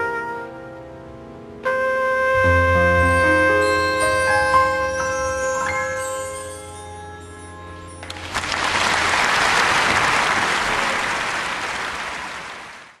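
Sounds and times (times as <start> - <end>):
held music chord: 0.1 - 8.3
audience applause: 8.0 - 13.0.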